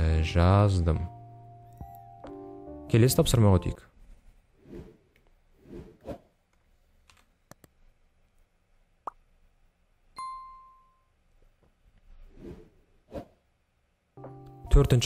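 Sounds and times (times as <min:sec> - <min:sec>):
bell ding: 0:10.2 - 0:11.1.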